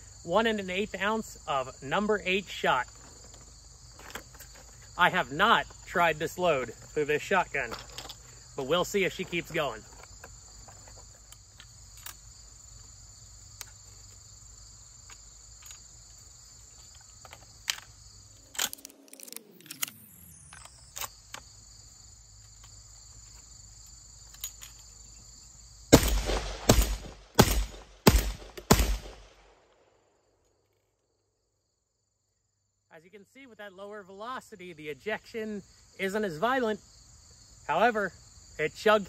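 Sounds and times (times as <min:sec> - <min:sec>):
shotgun shots: 0:25.9 - 0:29.6.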